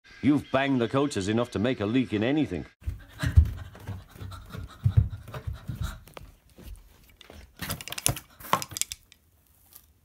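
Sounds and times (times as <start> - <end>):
breathy panting: 2.8 - 6.4.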